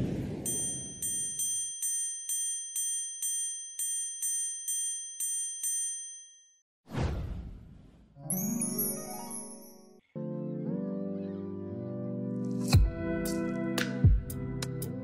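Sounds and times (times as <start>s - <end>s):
bell-like chime pings: 0.5s - 6.6s, 8.3s - 10.0s.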